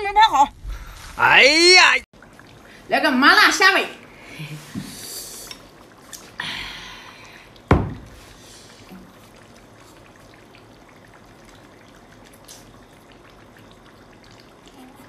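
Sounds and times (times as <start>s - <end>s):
sauce dripping and splashing: 4.9s - 14.8s
sharp thump: 7.7s - 8.1s.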